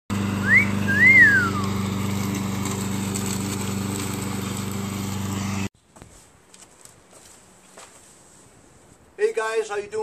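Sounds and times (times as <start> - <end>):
lawn mower engine running: 0.1 - 5.7
wolf whistle: 0.4 - 1.6.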